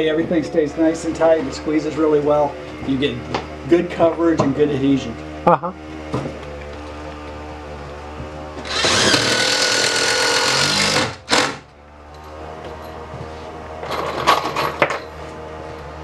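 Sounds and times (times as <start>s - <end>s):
power driver driving screw: 8.6s - 11.6s.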